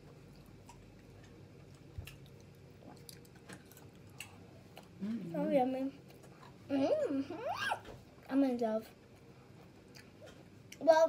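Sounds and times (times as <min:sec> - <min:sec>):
person chewing soft food: 0:00.0 - 0:05.2, 0:09.0 - 0:10.9.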